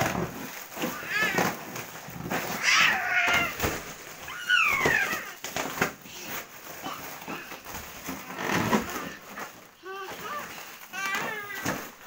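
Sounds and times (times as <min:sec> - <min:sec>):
foil balloon crumpling: 0:00.0 - 0:12.0
toddler squealing: 0:04.3 - 0:05.4.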